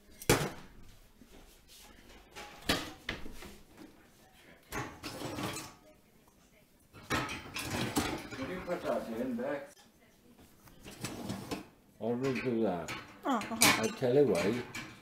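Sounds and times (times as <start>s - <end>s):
dishes clattering: 2.1s - 3.6s, 4.7s - 5.8s, 6.9s - 9.0s, 10.9s - 15.0s.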